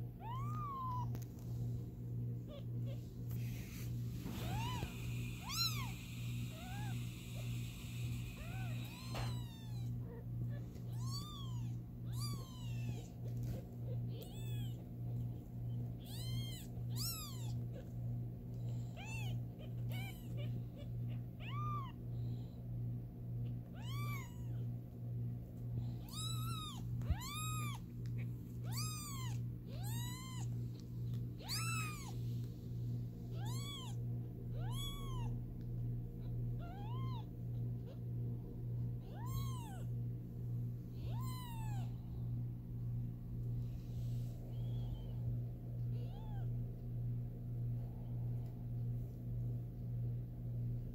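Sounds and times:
kittens mewing: 0:02.3 - 0:22.0, 0:23.4 - 0:24.7, 0:25.9 - 0:32.2, 0:33.3 - 0:35.4, 0:36.1 - 0:38.1, 0:39.0 - 0:40.0, 0:40.9 - 0:42.0, 0:44.3 - 0:46.6.

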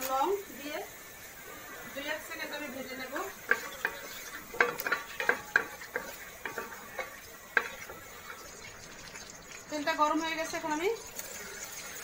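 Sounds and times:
faint sizzle: 0:00.0 - 0:12.0
spatula clicking against metal pan: 0:04.6 - 0:07.9.

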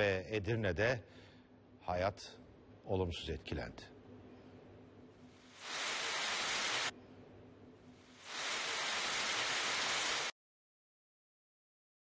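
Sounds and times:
heavy rain on the street: 0:05.6 - 0:06.9, 0:08.2 - 0:10.3.

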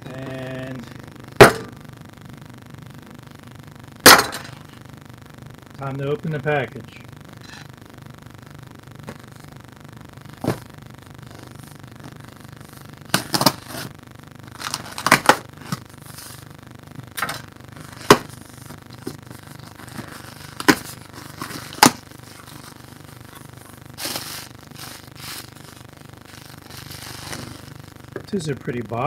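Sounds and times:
plastic packing rustling: 0:14.5 - 0:16.5, 0:17.2 - 0:28.3.

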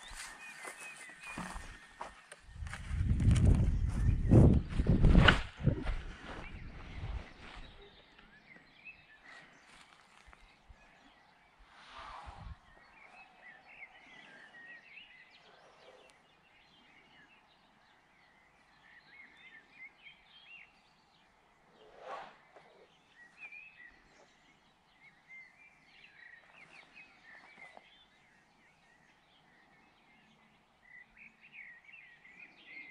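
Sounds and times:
small birds twittering: 0:00.0 - 0:32.9
wind on microphone: 0:02.4 - 0:08.0, 0:11.8 - 0:12.8.

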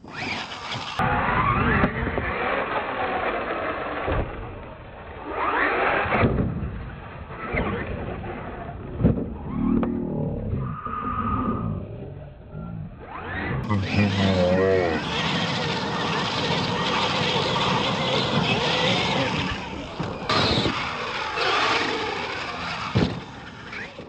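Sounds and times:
toy truck motor whining: 0:00.0 - 0:03.6, 0:13.1 - 0:24.0
truck thumping on dirt: 0:21.8 - 0:24.0.

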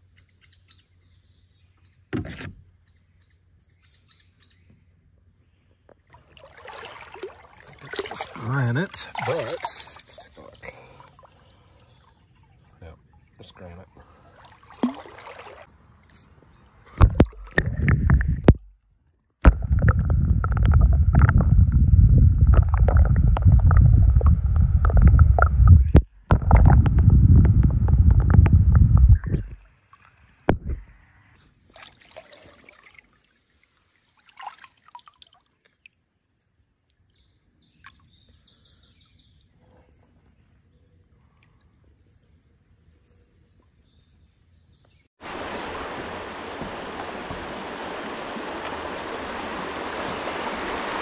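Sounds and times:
birds chirping: 0:05.6 - 0:17.0, 0:23.0 - 0:26.0, 0:36.4 - 0:45.1
hull and water rumble: 0:06.1 - 0:34.6, 0:45.2 - 0:51.0.

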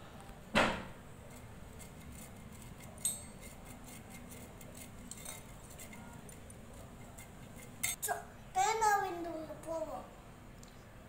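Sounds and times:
metal hand grater rasping: 0:01.3 - 0:08.0.

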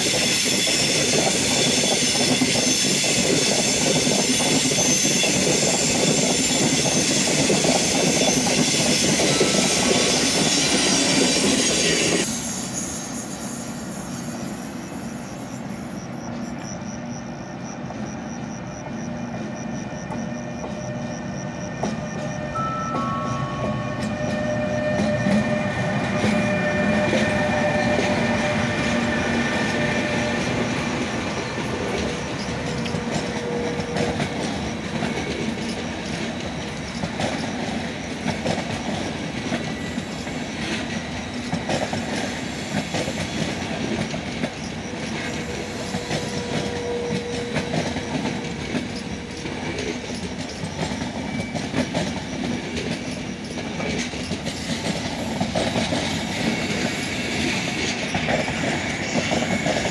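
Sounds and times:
train wheels rumbling on rail: 0:00.0 - 0:59.9
wheels clacking over rail joints: 0:24.0 - 0:59.9.

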